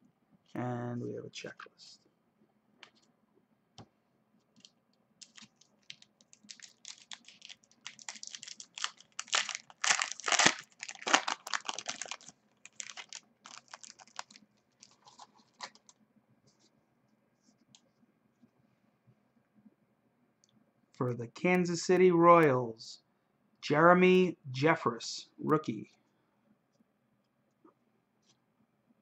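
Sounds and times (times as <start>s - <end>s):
foil wrapper crinkling and tearing: 4.6s - 15.9s.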